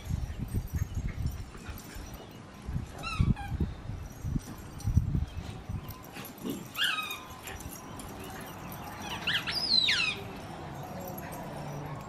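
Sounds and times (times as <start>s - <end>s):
squeaky dog toy squeaking: 3.0s - 3.6s, 6.8s - 7.4s, 9.0s - 10.3s.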